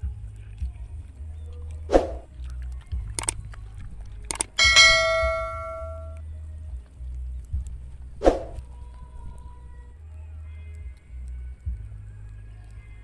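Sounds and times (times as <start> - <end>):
ringing metallic strike: 4.6 - 6.2.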